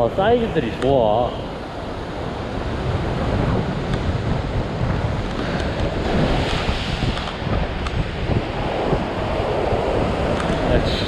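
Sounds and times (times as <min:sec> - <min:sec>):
ocean surf breaking on rocks: 0:00.0 - 0:11.0
wind buffeting microphone: 0:00.0 - 0:11.0.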